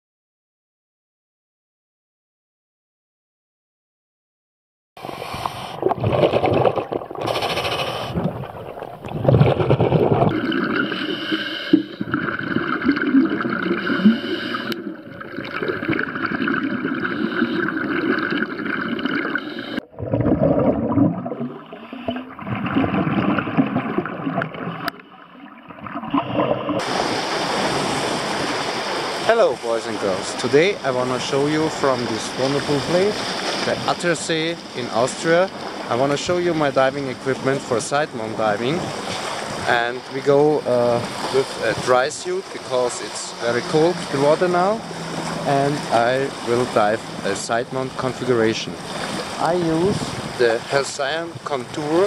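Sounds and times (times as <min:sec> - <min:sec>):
scuba divers breathing: 0:05.0 - 0:06.0, 0:07.2 - 0:08.4, 0:10.5 - 0:12.2, 0:13.6 - 0:15.1, 0:16.9 - 0:18.5, 0:19.2 - 0:19.8, 0:48.8 - 0:49.4
air bubbling and gurgling: 0:05.0 - 0:29.2.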